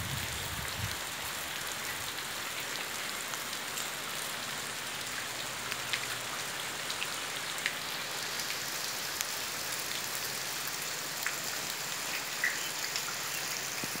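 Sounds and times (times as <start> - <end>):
rain falling on wet leaves: 0.0 - 14.0.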